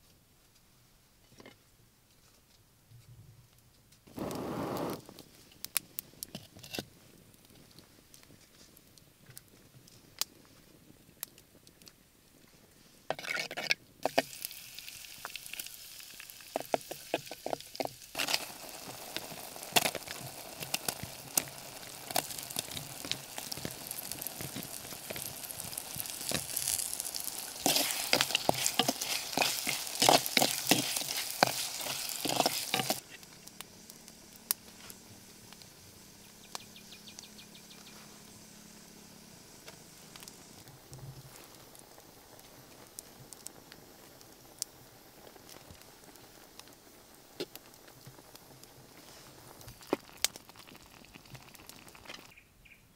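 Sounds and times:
meat sizzling in hot oil: 0:13.1 - 0:52.4.

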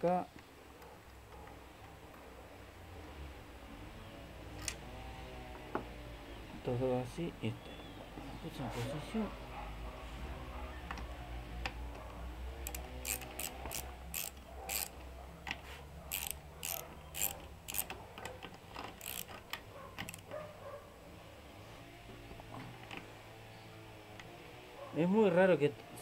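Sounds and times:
socket ratchet clicking: 0:12.6 - 0:15.0, 0:16.1 - 0:18.0, 0:18.9 - 0:20.3.

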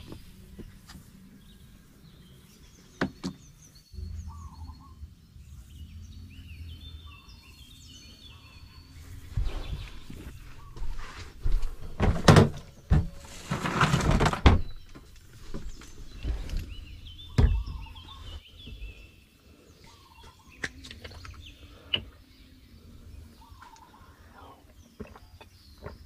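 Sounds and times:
birds chirping: 0:00.0 - 0:26.0
plastic cooler knocks and rustling: 0:11.9 - 0:14.8.

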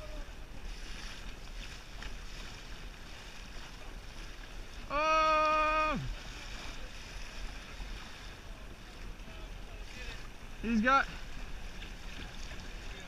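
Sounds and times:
water and wind noise: 0:00.0 - 0:13.0.

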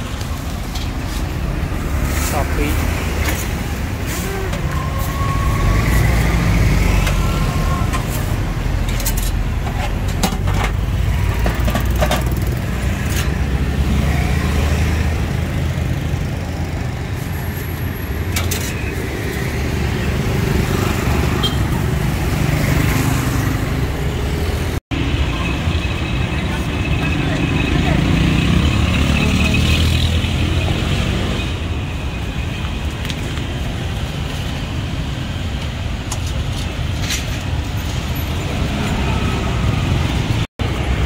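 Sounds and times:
passing vehicles rumble: 0:00.0 - 0:41.0.

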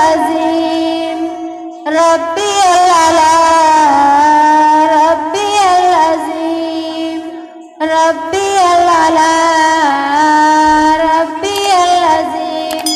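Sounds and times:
girls singing unaccompanied chant: 0:00.0 - 0:12.9.

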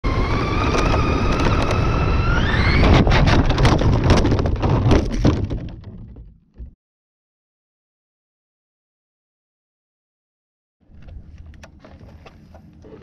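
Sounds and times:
toy car electric motor whining: 0:00.0 - 0:03.1
toy truck tumbling clatter: 0:00.1 - 0:06.4.

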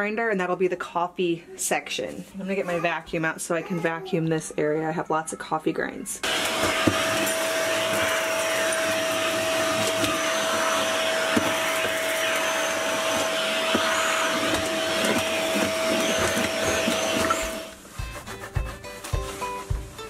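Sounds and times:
vacuum cleaner whining: 0:06.2 - 0:17.9.

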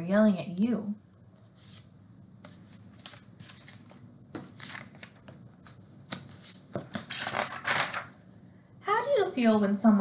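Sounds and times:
paper rustling: 0:01.4 - 0:08.1.

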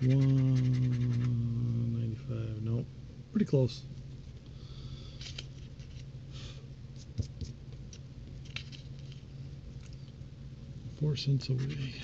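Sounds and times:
scratching lottery tickets: 0:00.0 - 0:01.4, 0:11.4 - 0:12.0
steady low hum: 0:00.0 - 0:12.0.

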